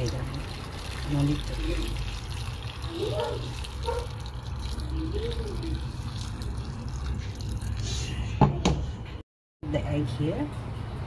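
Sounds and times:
broth pouring and splashing: 0:00.0 - 0:08.3.

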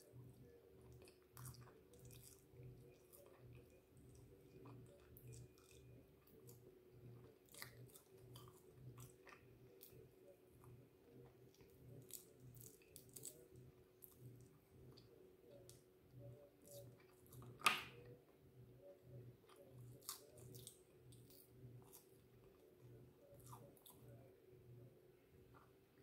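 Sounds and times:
person chewing food: 0:00.0 - 0:18.2, 0:18.9 - 0:24.3
steady low hum: 0:00.0 - 0:26.0.

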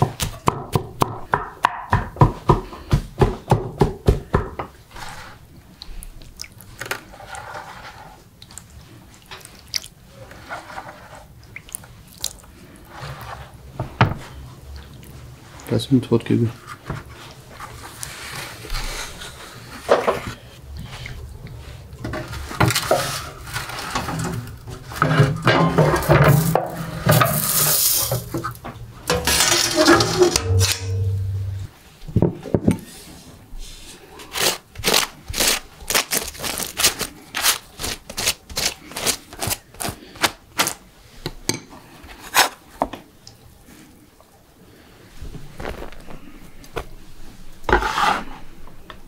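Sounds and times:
baking tray and utensils clattering: 0:22.0 - 0:31.7.

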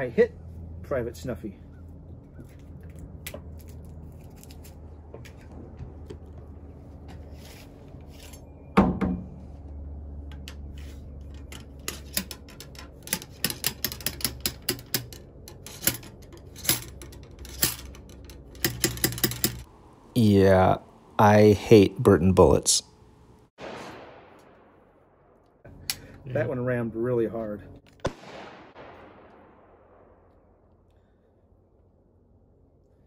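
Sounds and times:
ramrod metallic clicks and taps: 0:11.5 - 0:19.7.

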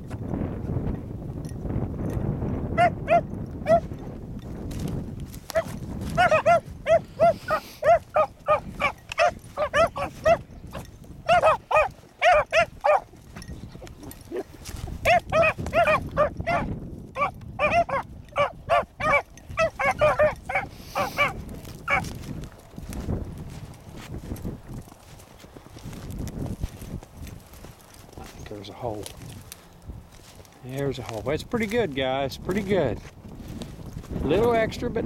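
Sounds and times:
wind rumble on microphone: 0:00.0 - 0:35.0
beagle pups baying: 0:02.7 - 0:03.9, 0:05.4 - 0:22.2.

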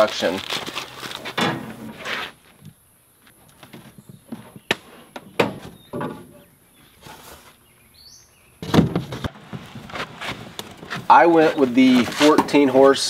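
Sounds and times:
cardboard panel scraping: 0:00.6 - 0:02.5, 0:08.7 - 0:12.8.

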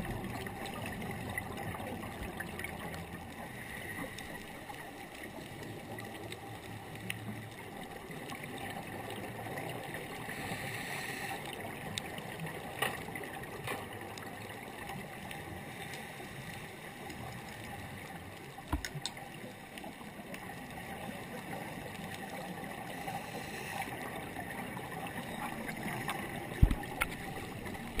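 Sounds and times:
underwater rush of water: 0:00.0 - 0:28.0
faint clicks: 0:01.6 - 0:28.0.

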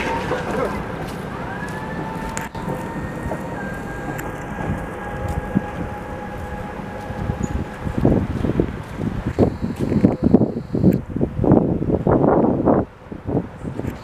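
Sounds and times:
tram wheels squealing: 0:00.0 - 0:10.9
low rumble: 0:00.0 - 0:14.0.

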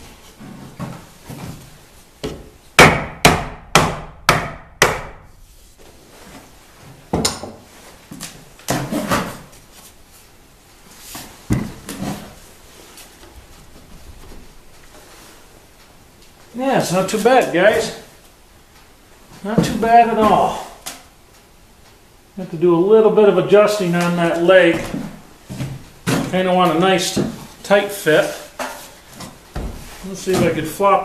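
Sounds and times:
mallet knocking on wood: 0:02.2 - 0:05.2.

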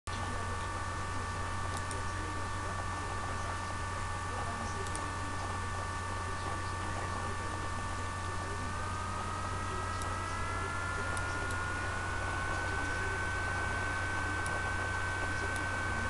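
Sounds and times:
electrical hum and hiss: 0:00.1 - 0:16.0
high whining tones: 0:08.5 - 0:16.0.

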